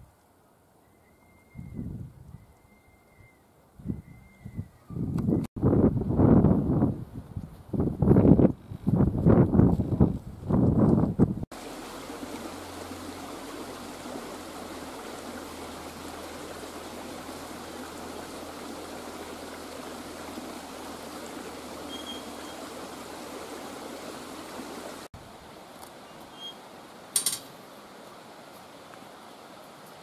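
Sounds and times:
stream flowing over rocks: 0:11.5 - 0:30.0.

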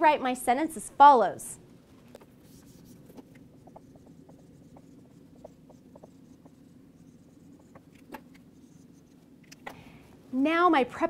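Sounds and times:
marker squeaking on whiteboard: 0:02.1 - 0:09.6.

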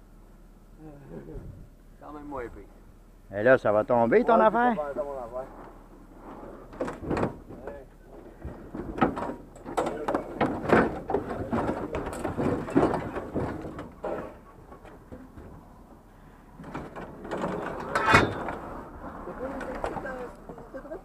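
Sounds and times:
scrap metal clanking: 0:05.6 - 0:15.4, 0:16.6 - 0:20.2.

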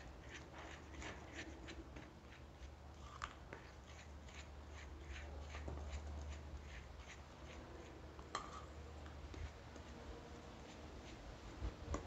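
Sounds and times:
spoon scraping dough in glass bowl: 0:00.0 - 0:08.8.

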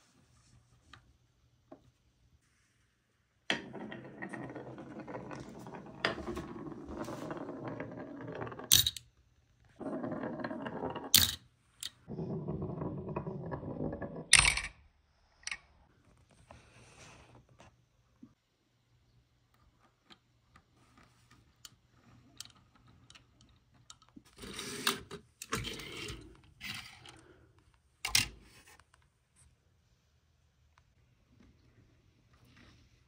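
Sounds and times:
marble clacking as it drops: 0:03.5 - 0:09.1, 0:09.8 - 0:14.8
marble rolling on wood: 0:03.5 - 0:14.7.

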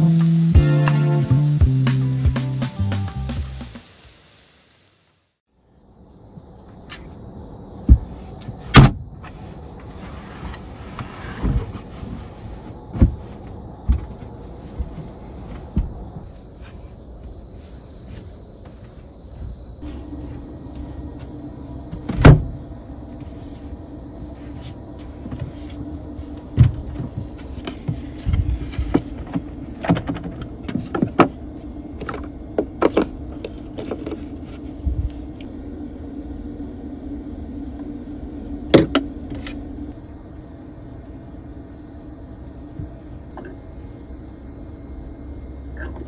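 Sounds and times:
steady low hum: 0:05.5 - 0:46.0
thump: 0:08.7 - 0:09.0.

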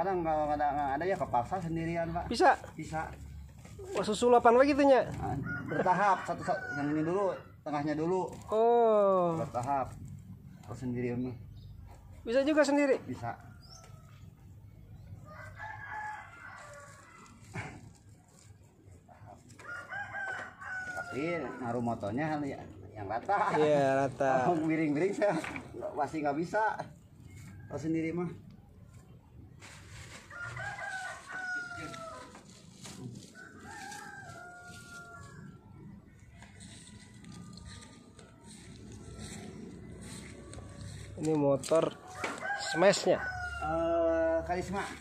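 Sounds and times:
rooster crowing: 0:05.2 - 0:07.5, 0:15.2 - 0:17.4, 0:19.6 - 0:21.8, 0:30.3 - 0:32.5, 0:33.2 - 0:45.0.

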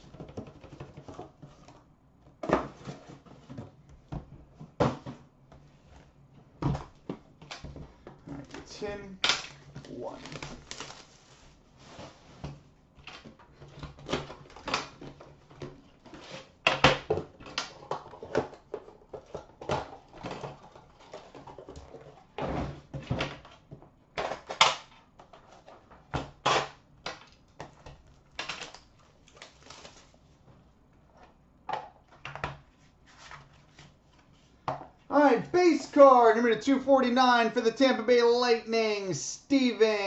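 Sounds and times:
cardboard rustling: 0:00.0 - 0:06.2.

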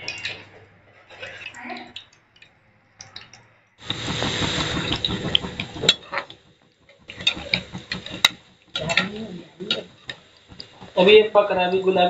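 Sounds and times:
food deep-frying in hot oil: 0:00.0 - 0:00.5, 0:03.0 - 0:12.0.

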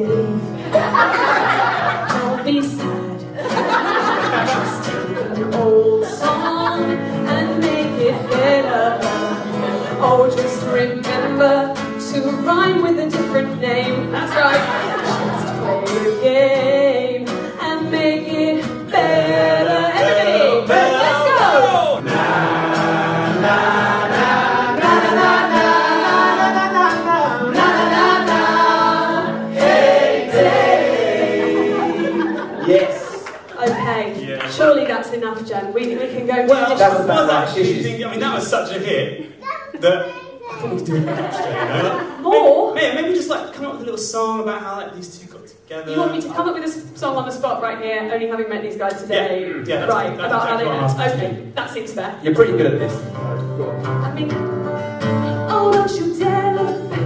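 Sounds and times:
woman singing pop song: 0:00.0 - 0:00.9, 0:02.0 - 0:03.5, 0:04.6 - 0:21.6, 0:55.2 - 0:57.0
strummed acoustic guitar: 0:00.0 - 0:34.6, 0:52.4 - 0:57.0.

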